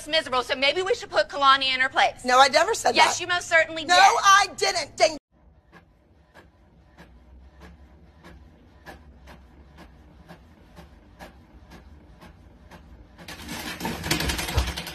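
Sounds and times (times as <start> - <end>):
printer low hum: 5.4 - 13.8
noisy printer whirring: 5.4 - 14.9.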